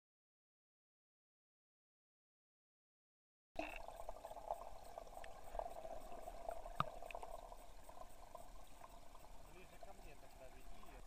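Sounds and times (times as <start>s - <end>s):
faint clicks: 3.6s - 10.9s
muffled underwater crackling hiss: 3.6s - 11.0s.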